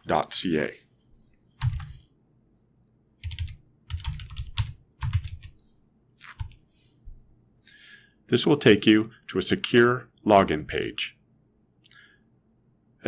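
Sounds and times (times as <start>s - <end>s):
computer keyboard typing: 1.6s - 2.0s, 3.2s - 5.6s, 6.2s - 6.6s.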